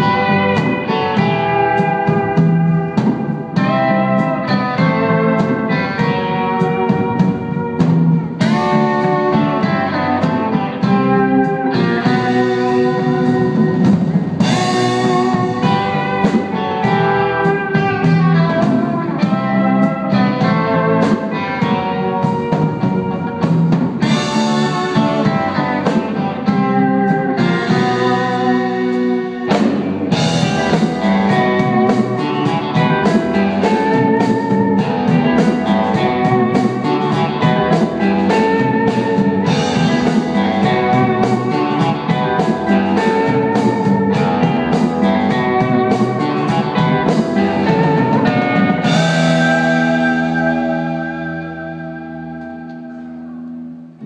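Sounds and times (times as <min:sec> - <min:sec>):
bass guitar: 0:00.0 - 0:54.0
drum kit: 0:00.0 - 0:54.0
electric guitar: 0:00.0 - 0:54.0
pedal steel guitar: 0:00.0 - 0:54.0.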